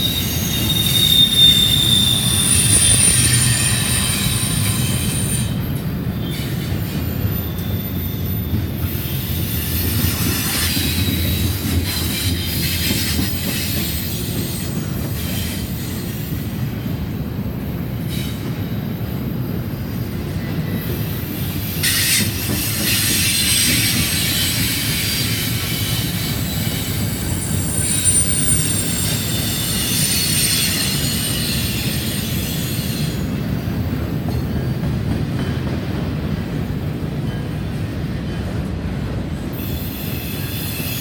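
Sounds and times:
metallic wheel squeal: 0.0 - 16.3, 21.4 - 33.2
train wheels rumbling on rails: 0.0 - 41.0.

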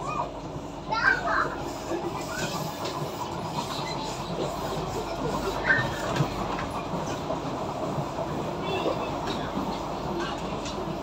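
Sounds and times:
train carriage rumble and hiss: 0.0 - 11.0.

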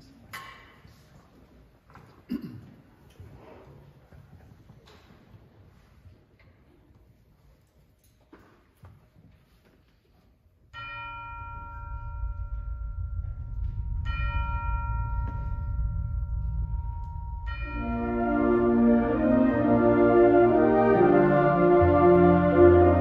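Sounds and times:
tubular bells struck: 10.8 - 20.0
low rumble: 11.2 - 19.5
winds and brass chord: 14.2 - 23.0.

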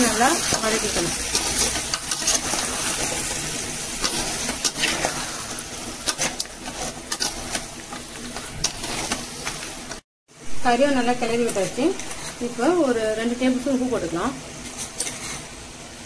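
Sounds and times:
meat sizzling in a pan: 0.0 - 10.0, 10.6 - 16.0
metal spoon scraping a pan: 0.0 - 10.0, 11.4 - 12.5, 14.6 - 15.5.

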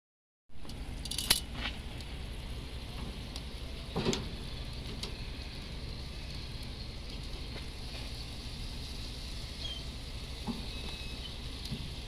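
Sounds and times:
metal tongs clicking on grill grate: 0.6 - 1.5
low steady rumble: 0.6 - 12.0.

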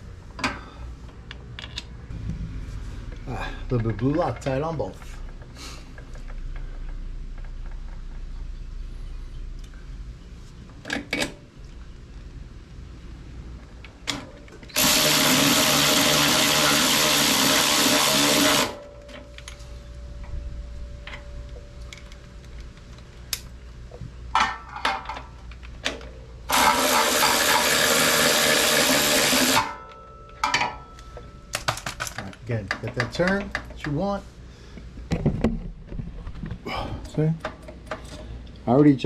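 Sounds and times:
cordless power tool driving bolts: 14.1 - 18.8, 26.5 - 29.8.

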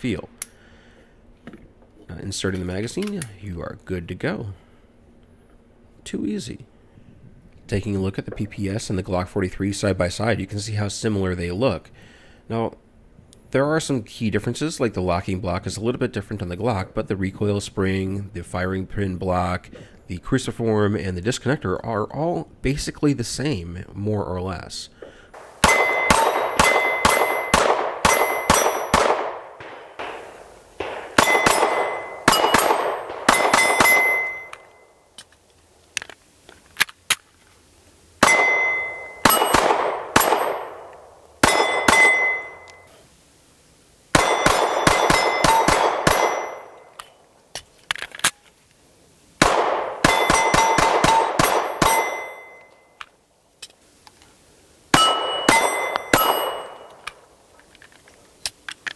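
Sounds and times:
pistol shots: 25.4 - 34.8, 38.2 - 42.8, 44.2 - 47.0, 49.4 - 52.7, 54.9 - 57.3
steel targets clanging: 25.4 - 35.0, 38.2 - 40.8, 41.4 - 42.9, 44.2 - 47.1, 50.0 - 53.0, 55.0 - 57.1.

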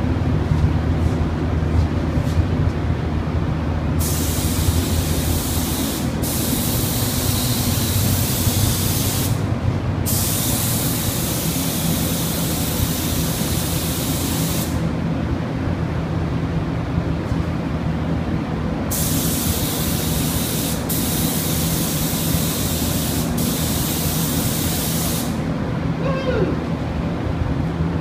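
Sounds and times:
steady low rumble: 0.0 - 11.4
paint spray gun hissing: 4.0 - 9.4, 10.1 - 14.8, 18.9 - 25.4.

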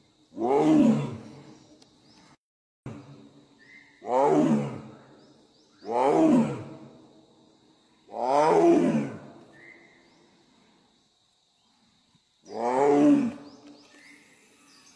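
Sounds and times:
tiger roaring: 0.4 - 1.4, 4.0 - 5.0, 5.8 - 6.9, 8.1 - 9.3, 12.5 - 13.5.

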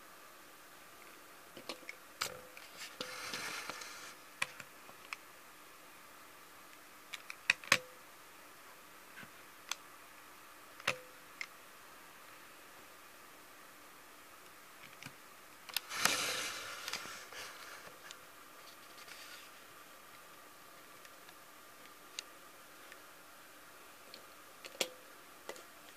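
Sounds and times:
brief scrape: 2.8 - 4.2, 15.9 - 17.9.

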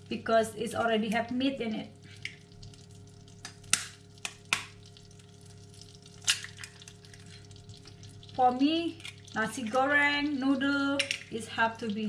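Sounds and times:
steady low hum: 0.0 - 12.0
egg frying in wok: 2.0 - 12.0
egg cracking on wok rim: 3.2 - 5.0, 5.8 - 9.8.

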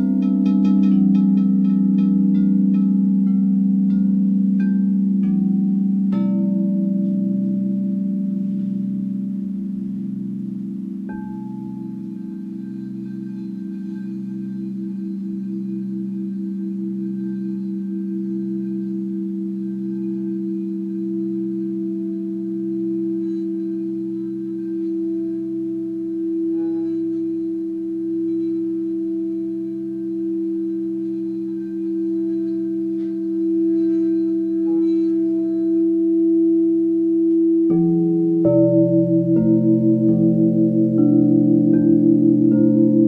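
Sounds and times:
crystal singing bowls ringing: 0.0 - 43.0.

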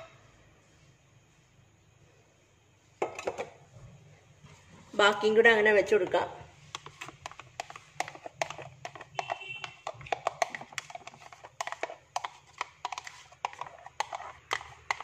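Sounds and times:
thick mix pouring: 6.6 - 15.0.

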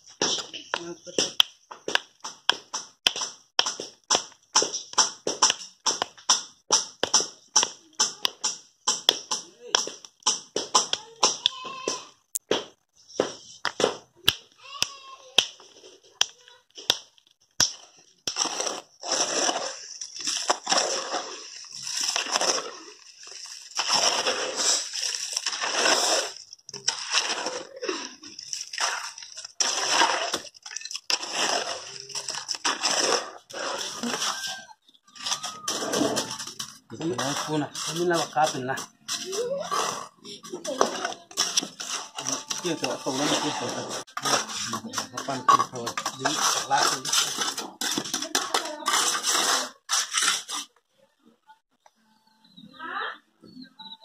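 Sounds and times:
hammer tapping stones: 0.2 - 18.4
hoe scraping wet concrete: 17.8 - 50.8.

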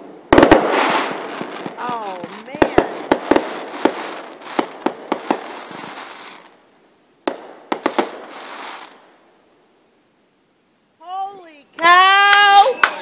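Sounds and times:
fireworks crackling: 0.0 - 9.8, 11.0 - 13.0
fireworks shells bursting: 12.2 - 13.0.

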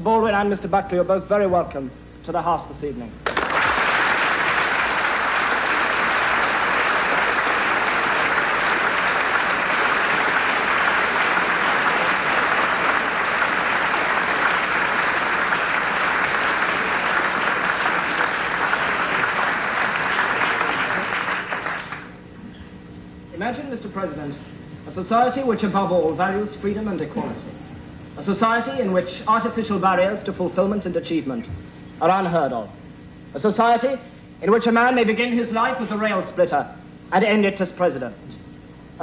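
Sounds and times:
audience applauding: 3.2 - 22.2.

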